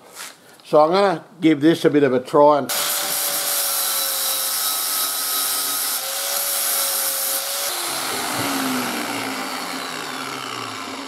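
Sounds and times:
angle grinder grinding steel: 2.7 - 11.0
grinder whine spinning down: 7.6 - 11.0.

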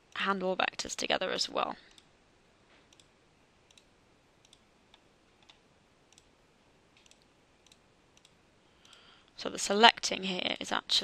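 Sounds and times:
computer mouse clicks: 2.9 - 3.1, 3.7 - 6.3, 7.0 - 9.0.

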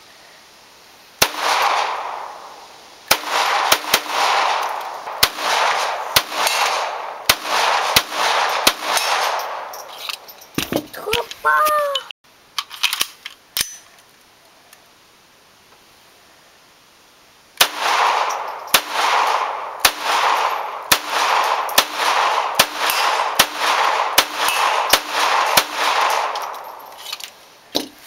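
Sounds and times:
pistol shots with echo: 1.2 - 9.8, 17.6 - 26.8.

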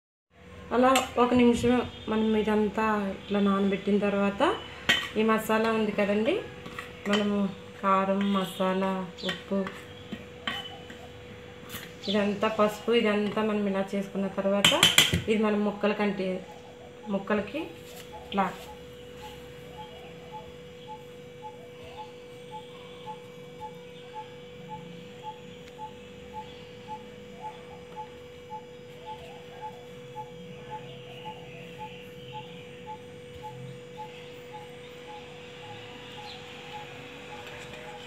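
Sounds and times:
steady electrical hum: 0.3 - 38.0
faint bird chirps: 16.4 - 38.0.

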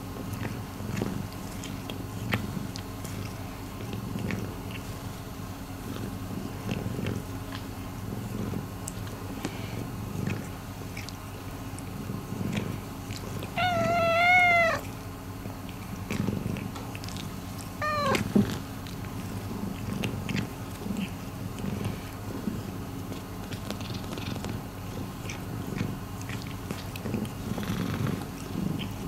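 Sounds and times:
cat purring: 0.8 - 5.2, 8.0 - 8.7, 11.8 - 15.0, 15.8 - 29.0
cat meowing: 13.6 - 14.9, 17.8 - 18.3.

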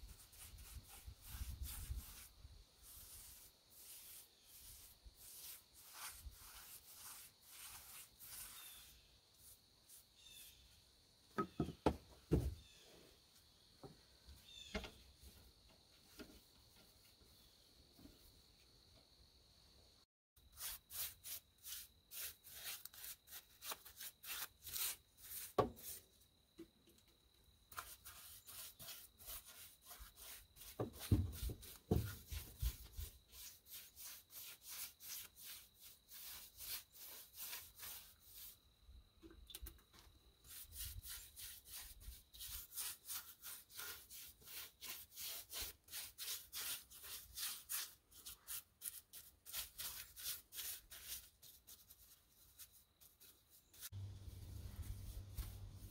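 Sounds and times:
paintbrush scrubbing wood: 0.0 - 10.0, 20.6 - 26.0, 27.7 - 38.6, 40.4 - 55.9.

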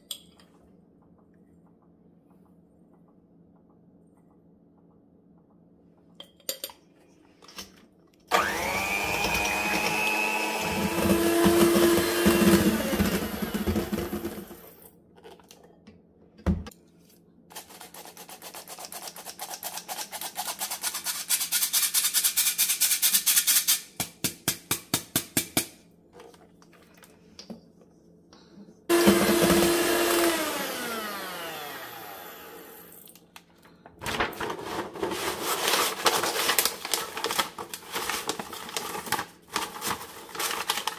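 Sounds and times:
electric hand mixer whisking: 8.3 - 14.7, 28.9 - 32.9
parchment paper crinkling: 33.6 - 40.9.

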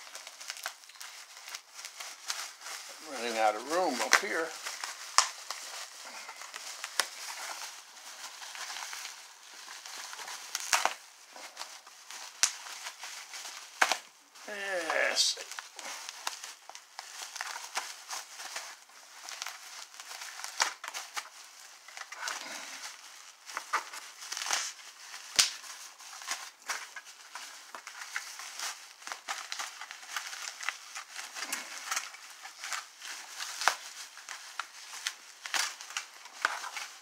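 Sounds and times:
bubble wrap crinkling: 0.0 - 37.0.

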